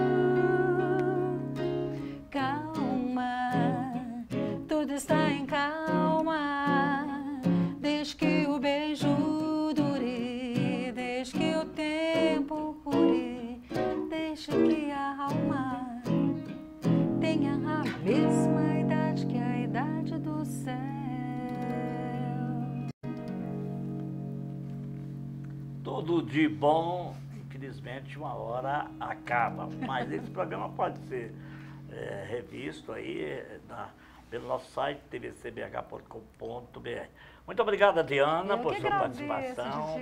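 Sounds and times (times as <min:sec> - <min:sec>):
woman singing with vibrato: 0:00.0 - 0:16.3, 0:17.2 - 0:22.9
electric guitar: 0:00.0 - 0:32.3
acoustic guitar: 0:00.0 - 0:34.6, 0:38.5 - 0:40.0.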